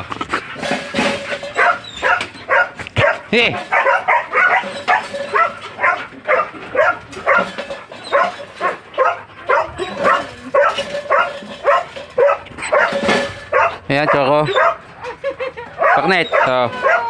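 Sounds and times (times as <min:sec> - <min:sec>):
dog yelping barks: 0:01.4 - 0:17.0.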